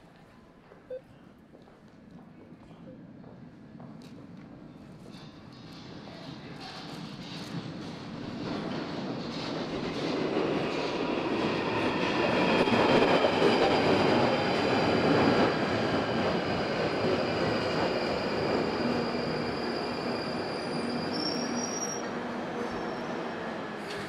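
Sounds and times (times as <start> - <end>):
wheel and brake squeal: 19.0 - 23.2.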